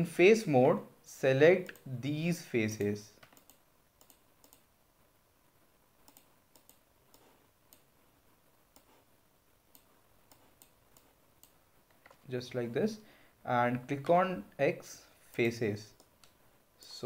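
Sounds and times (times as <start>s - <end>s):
computer mouse clicks: 2.8s - 4.7s, 6.0s - 7.9s, 8.7s - 9.1s, 9.7s - 12.2s, 15.3s - 16.4s.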